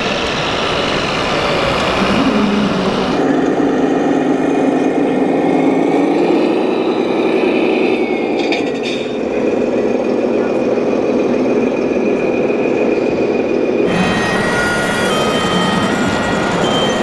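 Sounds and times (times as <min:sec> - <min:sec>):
toy truck motor droning: 0:13.8 - 0:17.0.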